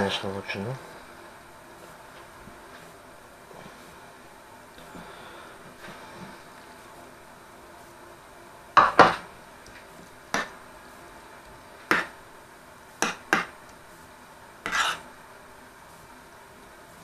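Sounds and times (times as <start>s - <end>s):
utensil knocking against a dish: 13.0s - 13.5s.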